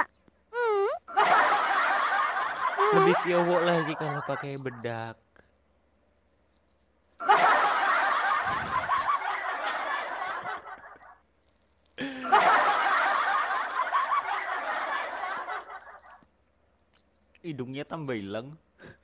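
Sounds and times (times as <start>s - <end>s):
man laughing: 2.6s - 5.0s, 8.3s - 9.3s, 12.0s - 13.0s.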